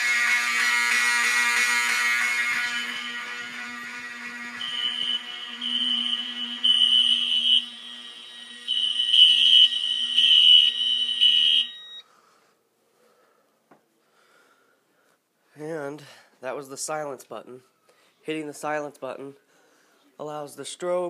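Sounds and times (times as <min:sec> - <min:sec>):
fire alarm horn: 0:00.0 - 0:12.0.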